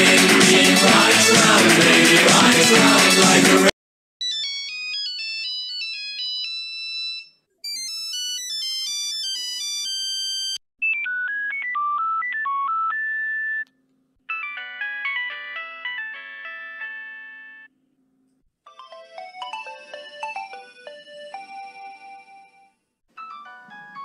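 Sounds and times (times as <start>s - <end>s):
mobile phone ringtones: 4.2s - 13.6s, 14.3s - 17.7s, 18.7s - 24.0s.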